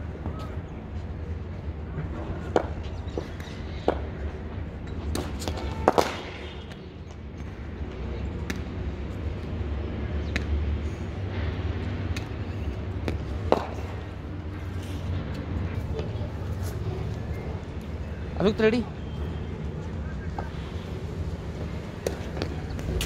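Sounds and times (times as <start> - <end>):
steady low rumble: 19.0 - 23.0.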